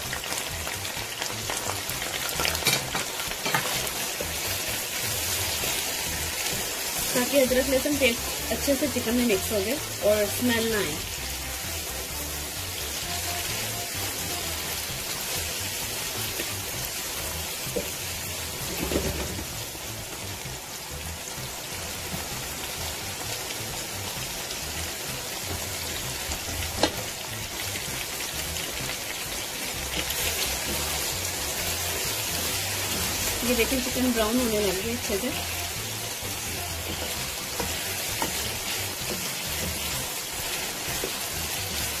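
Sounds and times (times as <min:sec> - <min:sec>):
chicken sizzling in hot oil: 0:00.0 - 0:42.0
spatula stirring and knocking pan: 0:01.2 - 0:06.7, 0:25.4 - 0:27.6, 0:29.8 - 0:42.0.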